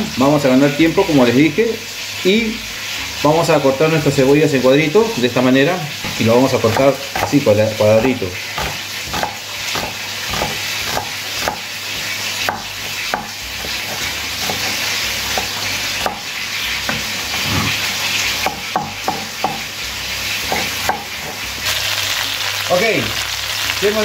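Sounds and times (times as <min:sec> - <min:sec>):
chicken sizzling in frying pan: 0:00.0 - 0:24.0
knife chopping on wooden board: 0:06.0 - 0:16.3, 0:18.4 - 0:19.7, 0:20.5 - 0:21.4.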